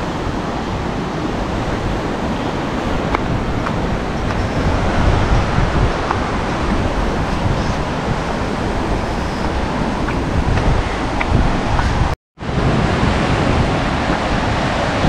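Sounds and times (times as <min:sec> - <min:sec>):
sea surf washing ashore: 0:00.0 - 0:15.0
wind buffeting microphone: 0:00.0 - 0:15.0.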